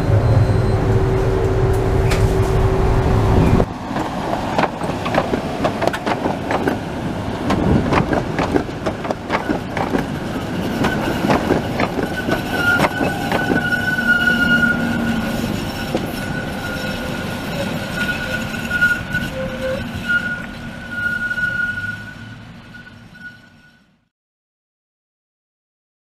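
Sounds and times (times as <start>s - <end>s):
tram wheels clattering over rail joints: 0.0s - 23.7s
high wheel squeal: 9.3s - 24.0s.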